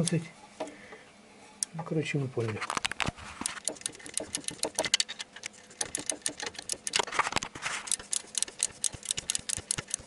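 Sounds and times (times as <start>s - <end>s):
ratchet wrench clicking: 3.4s - 5.2s, 5.8s - 7.1s, 7.9s - 10.0s.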